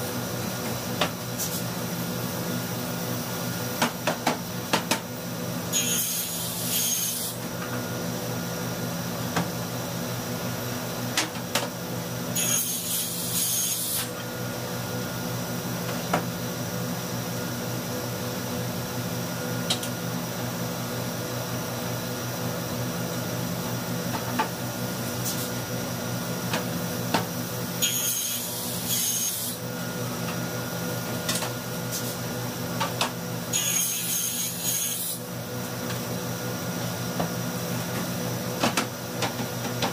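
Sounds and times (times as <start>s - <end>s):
saw blade cutting wood: 5.8s - 7.4s, 12.4s - 14.1s, 27.8s - 29.6s, 33.5s - 35.2s.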